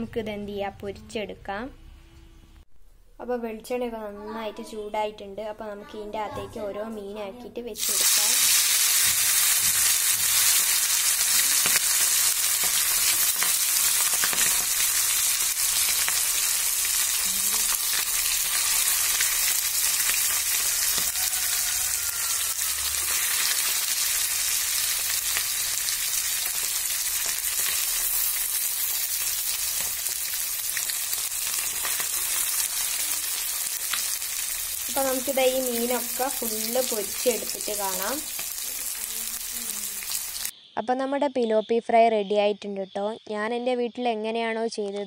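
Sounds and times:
fish sizzling in hot oil: 7.8s - 40.5s.

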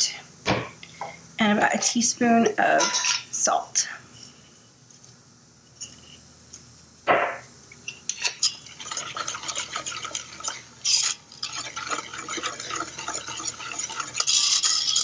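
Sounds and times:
whisk scraping saucepan: 2.8s - 3.3s, 8.1s - 15.0s.

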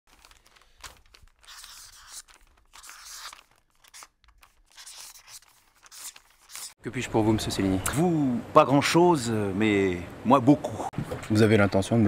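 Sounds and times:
pen scratching on paper: 1.4s - 4.0s, 4.7s - 6.7s.

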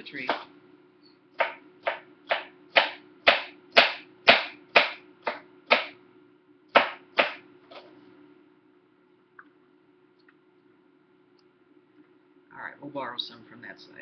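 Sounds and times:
knife chopping on cutting board: 1.4s - 6.0s, 6.8s - 7.4s.

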